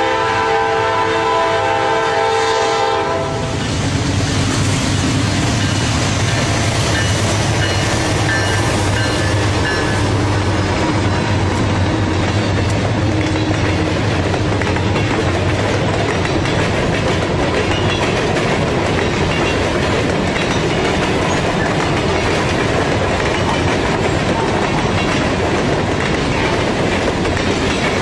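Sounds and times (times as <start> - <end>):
locomotive horn blast: 0.0 - 3.6
locomotive engines rumbling: 0.0 - 28.0
train wheels clattering on rails: 0.0 - 28.0.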